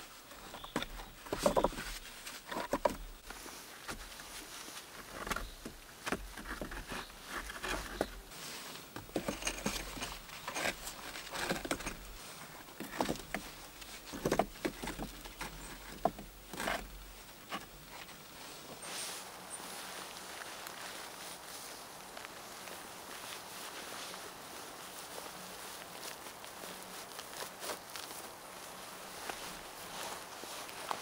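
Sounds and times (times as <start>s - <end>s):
stones knocking and scraping: 0.4s - 4.2s, 5.0s - 8.3s, 8.9s - 18.2s.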